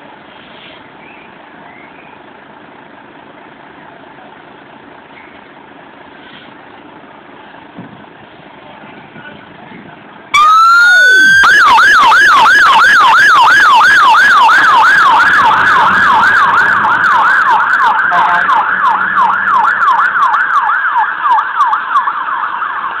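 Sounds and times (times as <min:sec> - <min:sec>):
fire engine siren yelping: 0:10.3 - 0:23.0.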